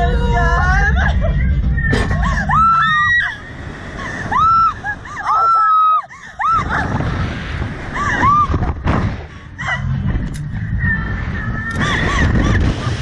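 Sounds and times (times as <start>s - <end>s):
women shrieking and laughing: 0.0s - 7.0s, 7.9s - 8.6s
wind noise: 6.2s - 13.0s.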